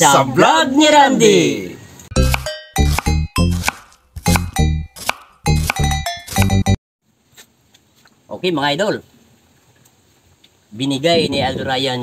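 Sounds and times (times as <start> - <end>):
ringing bell-like struck notes: 2.1 - 3.6, 4.2 - 6.8.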